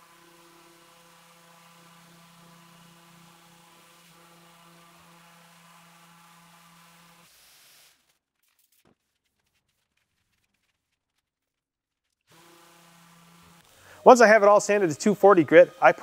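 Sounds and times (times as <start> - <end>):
orbital sander running: 0.0 - 7.3, 12.3 - 16.0.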